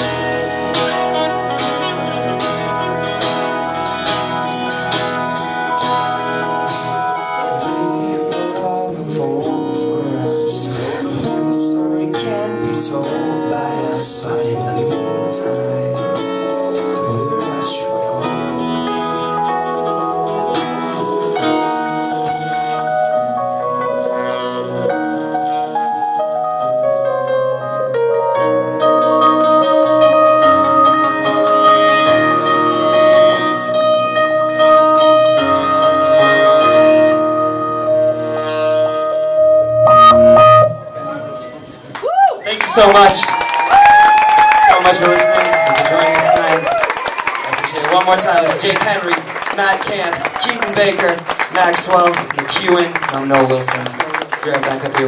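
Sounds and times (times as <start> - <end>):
saxophone: 0.0 - 8.6, 13.6 - 42.0
keyboard: 0.0 - 42.0
acoustic guitar: 0.0 - 43.2, 44.1 - 55.0
electric bass: 28.0 - 41.9.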